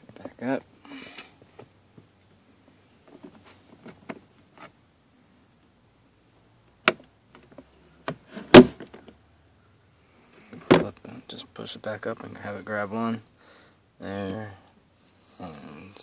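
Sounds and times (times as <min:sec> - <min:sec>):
glove box knocking into place: 0:08.5 - 0:08.9.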